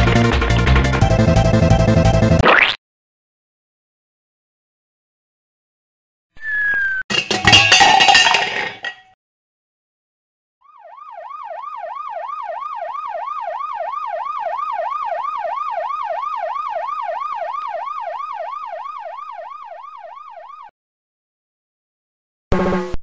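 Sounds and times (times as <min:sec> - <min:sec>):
emergency siren yelping: 0:10.6 - 0:20.7.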